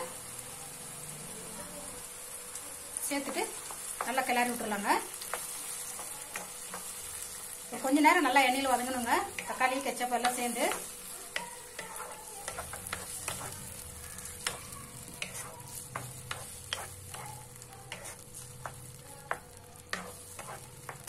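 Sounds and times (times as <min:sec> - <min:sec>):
sauce sizzling: 0:00.0 - 0:21.0
spatula scraping a pan: 0:08.1 - 0:21.0.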